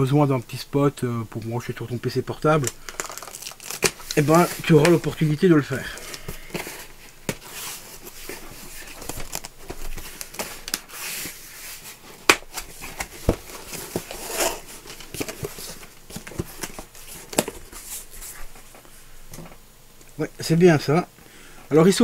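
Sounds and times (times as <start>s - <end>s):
packaging rustling and crinkling: 2.4s - 18.9s.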